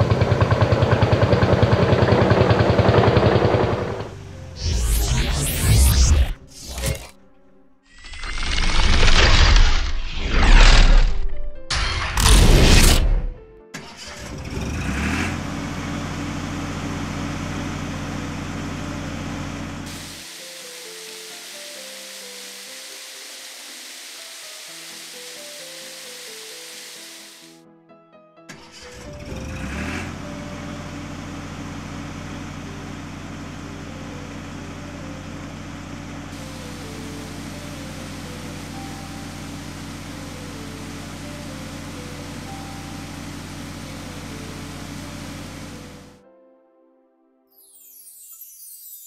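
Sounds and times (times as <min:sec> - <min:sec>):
cartoon truck engine drone: 0:00.0 - 0:07.2, 0:07.9 - 0:19.9, 0:28.7 - 0:46.2
cartoon truck engine revving: 0:07.9 - 0:18.3, 0:28.7 - 0:30.8.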